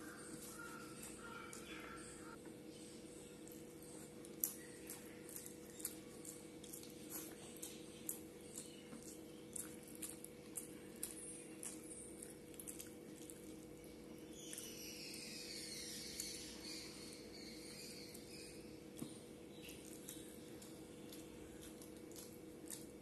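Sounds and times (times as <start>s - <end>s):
steady low hum: 0.0s - 23.0s
wet chewing and lip smacks: 3.4s - 13.8s, 18.9s - 23.0s.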